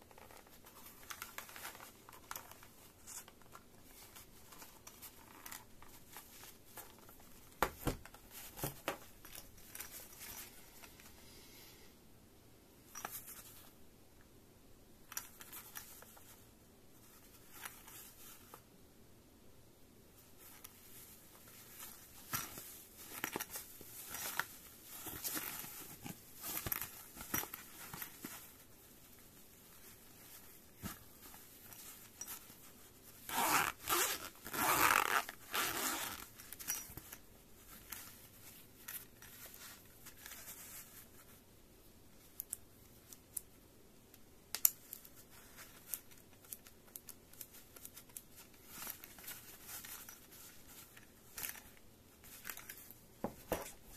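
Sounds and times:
zipper being pulled open: 33.3 - 36.3
hands handling a case: 47.8 - 53.9.

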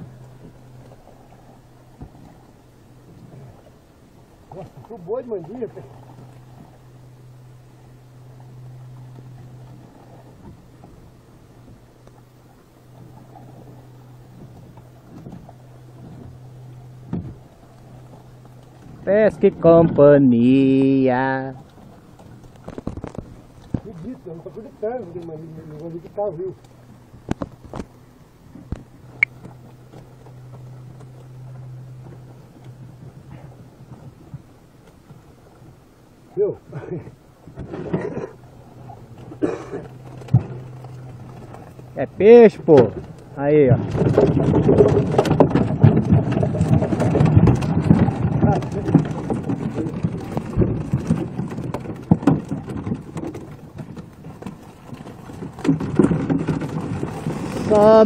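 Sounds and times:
low steady hum: 0.0 - 58.0
fish flapping against crate: 21.8 - 25.8, 42.6 - 58.0.

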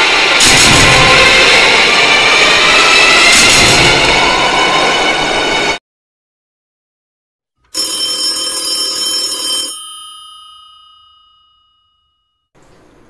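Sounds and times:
old telephone bell ringing: 7.7 - 12.5.

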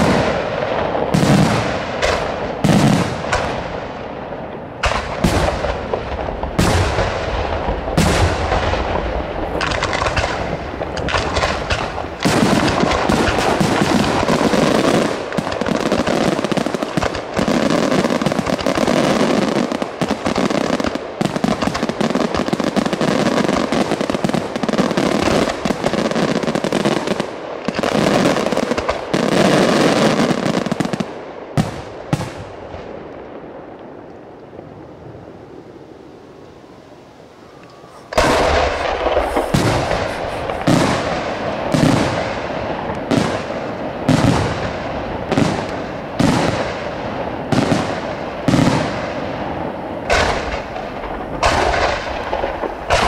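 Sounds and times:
firework shells bursting: 37.7 - 44.6.

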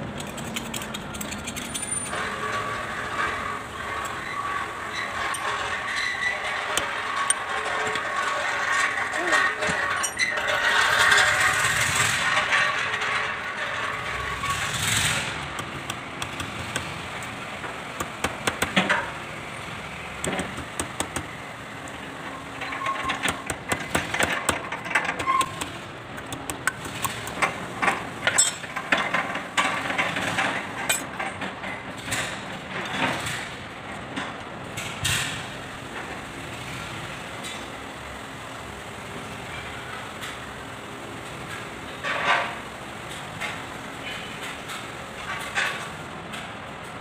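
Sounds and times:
metal parts clinking: 0.0 - 17.4, 20.2 - 31.4
steady background hum: 0.0 - 47.0.

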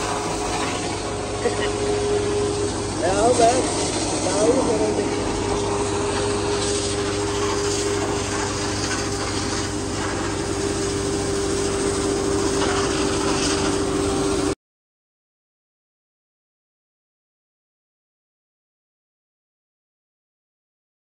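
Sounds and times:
high-pressure water jet hissing: 0.0 - 14.6
suction pump whining: 0.0 - 14.6.

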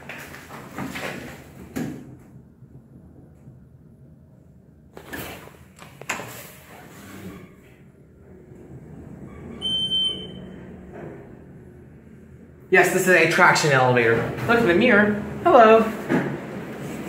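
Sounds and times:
elevator car hum: 0.0 - 17.0
elevator clunks: 7.1 - 12.5, 13.8 - 17.0
high electronic beep: 9.6 - 10.4.

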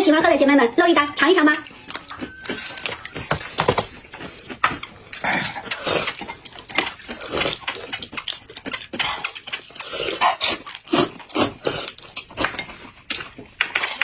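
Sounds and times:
mouth chewing noises: 1.6 - 14.0
noodles being slurped: 5.1 - 13.2.

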